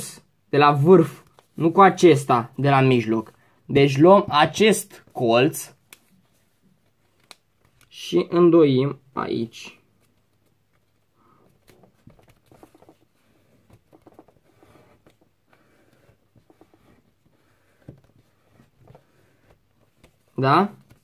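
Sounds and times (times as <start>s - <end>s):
paper rustling being folded: 9.8s - 21.0s.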